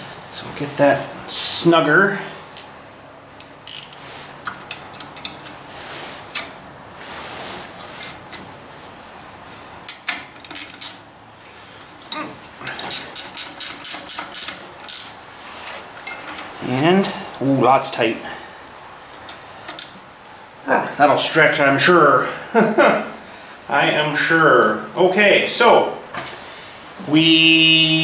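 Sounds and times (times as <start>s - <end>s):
ratchet wrench clicks: 2.6s - 2.8s, 3.4s - 5.5s, 9.9s - 11.0s, 12.7s - 15.1s.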